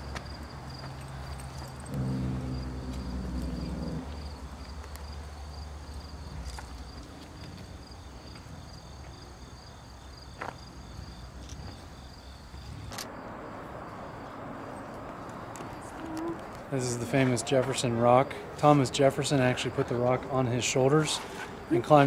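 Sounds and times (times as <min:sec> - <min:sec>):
low outdoor rumble: 0:00.0 - 0:17.2
insects chirping: 0:00.0 - 0:22.0.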